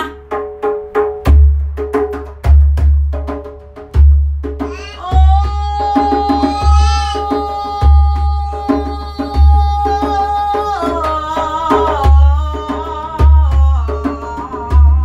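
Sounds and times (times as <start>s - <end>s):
djembe drumming: 0.0s - 15.0s
person singing: 4.7s - 15.0s.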